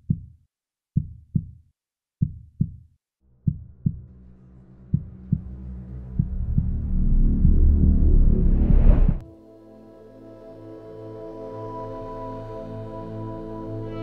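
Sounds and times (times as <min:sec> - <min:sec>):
low droning pad: 0:03.3 - 0:14.0
deep bass thumps: 0:03.4 - 0:04.1, 0:04.9 - 0:09.2.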